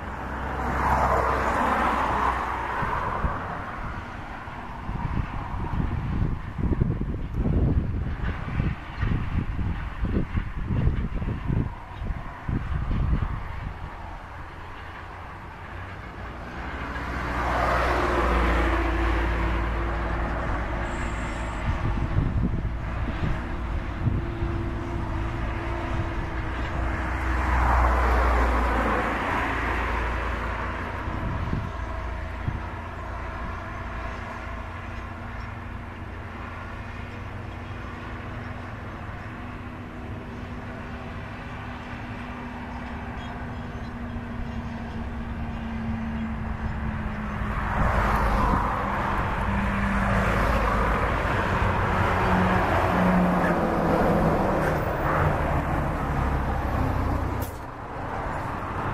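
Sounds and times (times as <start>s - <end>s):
road vehicles passing: 0.0s - 58.9s
tractor diesel engine under load: 0.0s - 58.9s
truck passing: 0.0s - 58.9s.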